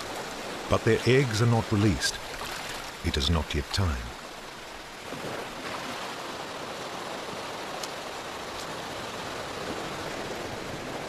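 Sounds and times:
sea water washing over rocks: 0:00.0 - 0:11.0.

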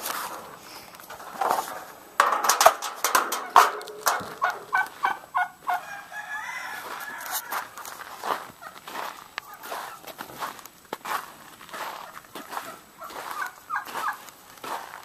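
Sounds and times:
fowl calling: 0:03.4 - 0:07.8, 0:09.4 - 0:10.1, 0:11.7 - 0:14.2.

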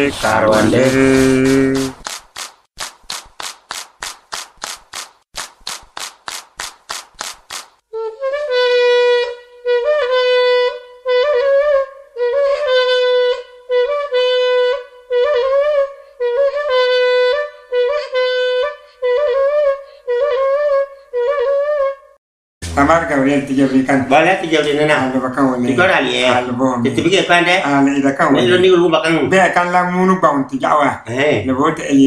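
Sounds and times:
wind instrument held notes: 0:07.9 - 0:21.8.

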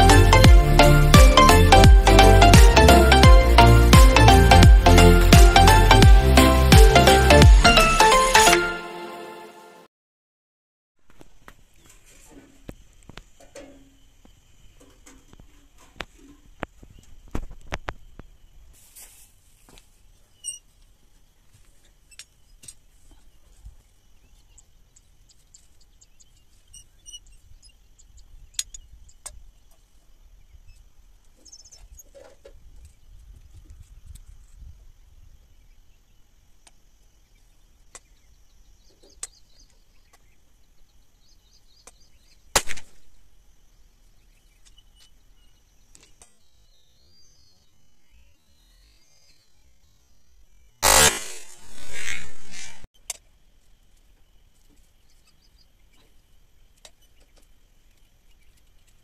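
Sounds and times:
sharp loud crack: 0:42.6 - 0:43.0, 0:50.8 - 0:52.8.

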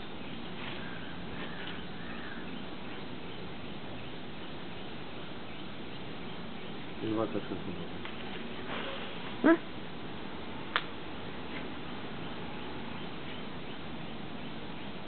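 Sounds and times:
faint bird chirps: 0:00.0 - 0:09.6
outdoor background hiss: 0:00.0 - 0:15.0.

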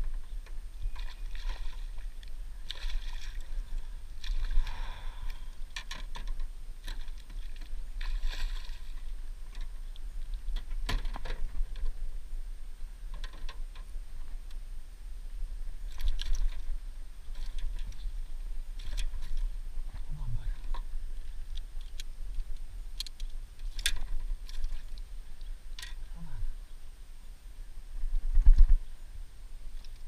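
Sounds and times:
water swishes: 0:00.0 - 0:13.4, 0:15.2 - 0:21.8.

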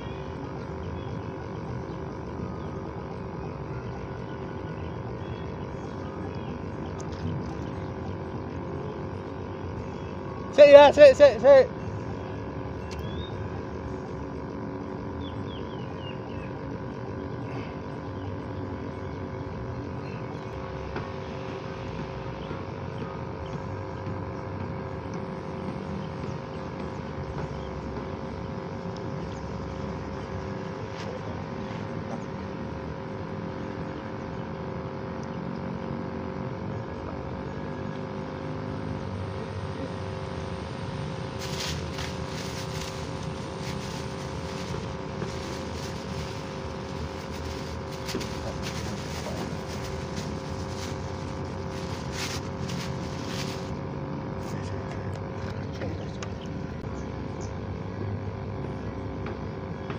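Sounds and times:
steady engine drone: 0:00.0 - 0:59.9
plastic bag crackling: 0:41.3 - 0:53.8.

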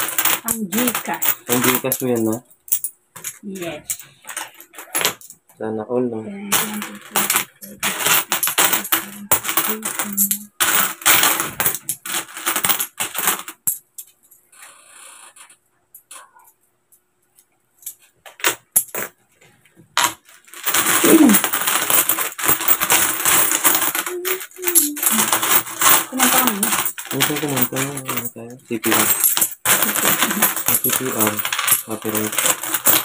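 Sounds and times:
coins clinking: 0:00.0 - 0:05.4, 0:06.5 - 0:14.4, 0:20.0 - 0:33.0.

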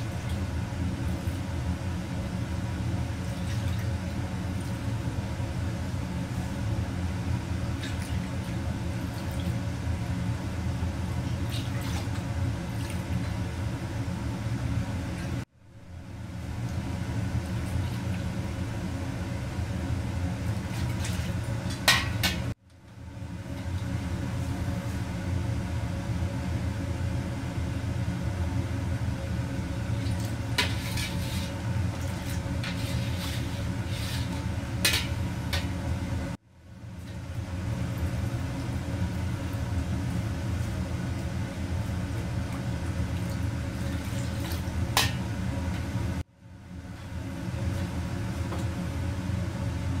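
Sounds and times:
low rumble of kitchen range: 0:00.0 - 0:50.0
metal ladle scraping a wok: 0:30.6 - 0:31.6, 0:32.2 - 0:35.7.

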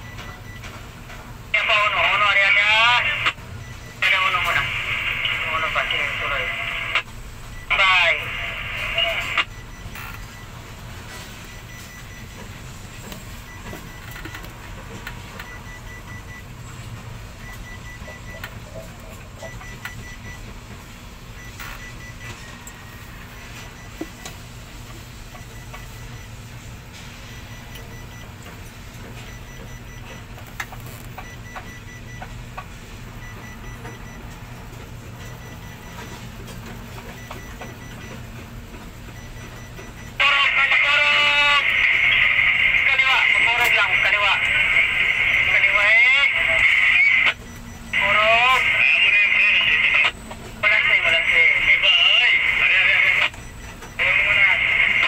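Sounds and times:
steady low hum: 0:00.0 - 0:55.0
faint electronic beeps: 0:01.6 - 0:14.5, 0:15.4 - 0:16.5, 0:17.4 - 0:20.5, 0:21.3 - 0:26.4, 0:29.2 - 0:32.3, 0:39.1 - 0:55.0.

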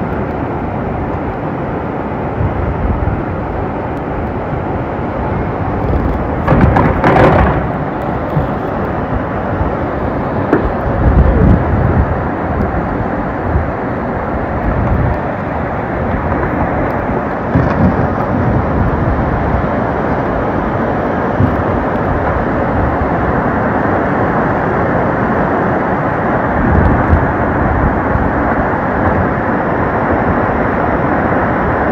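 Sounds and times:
floodwater rushing: 0:00.0 - 0:31.9
low rumbles: 0:02.3 - 0:24.7.

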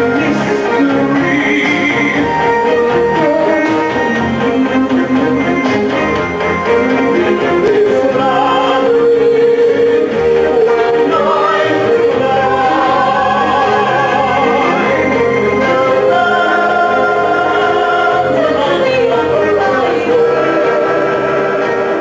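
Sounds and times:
instrumental accompaniment: 0:00.0 - 0:22.0
person singing with vibrato: 0:00.0 - 0:22.0.

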